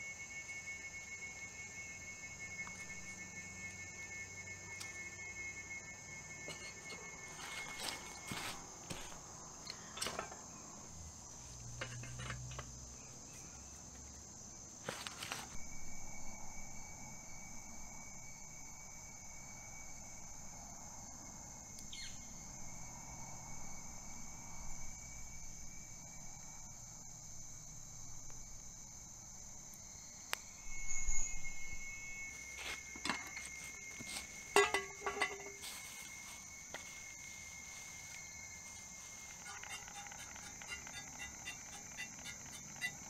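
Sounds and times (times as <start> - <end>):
crickets and insects chirring: 0.0 - 43.0.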